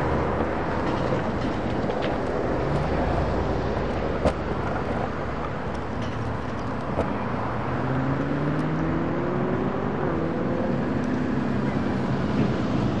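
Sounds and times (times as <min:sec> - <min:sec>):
background traffic noise: 0:00.0 - 0:13.0
vehicle engine accelerating: 0:06.8 - 0:13.0.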